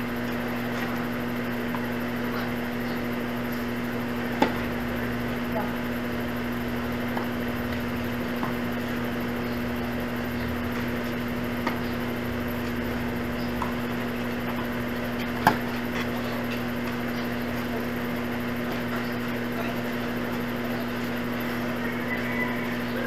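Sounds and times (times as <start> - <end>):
steady low hum: 0.0 - 23.0
tennis ball bouncing on court: 4.3 - 4.6, 15.2 - 15.8
tennis ball struck by rackets: 15.4 - 15.7.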